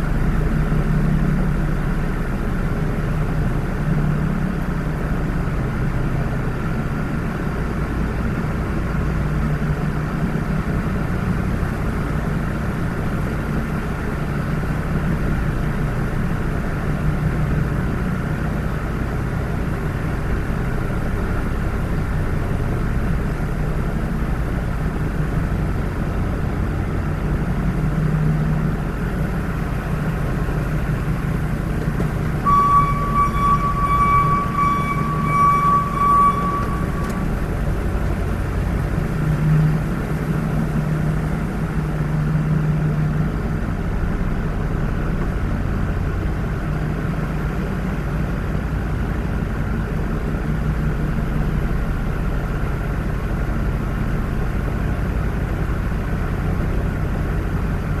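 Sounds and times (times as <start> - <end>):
car engine and road noise: 0.0 - 58.0
high electronic beeping: 32.4 - 37.5.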